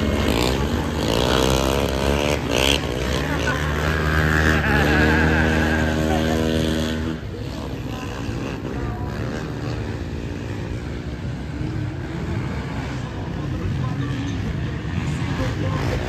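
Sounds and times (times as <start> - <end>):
loud vehicle engine: 0.0 - 16.0
rough engine noise: 0.0 - 16.0.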